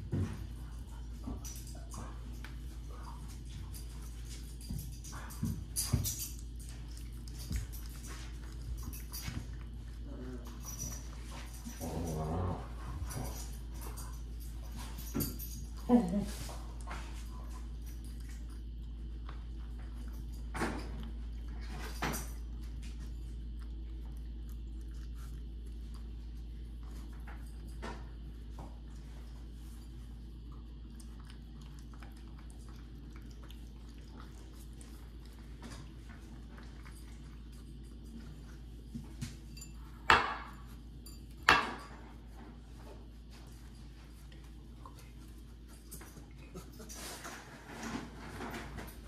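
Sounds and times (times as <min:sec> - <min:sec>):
puppy eating clicks: 0:22.3 - 0:38.2.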